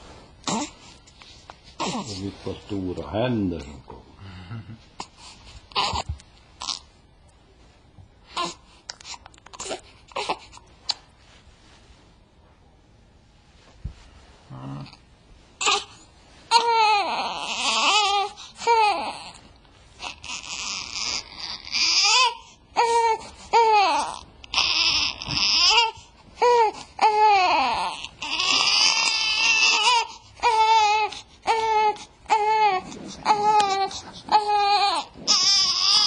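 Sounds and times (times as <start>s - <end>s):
newborn baby crying: 1.8s - 2.2s, 5.0s - 6.9s, 8.3s - 10.6s, 15.6s - 19.4s, 20.0s - 36.0s.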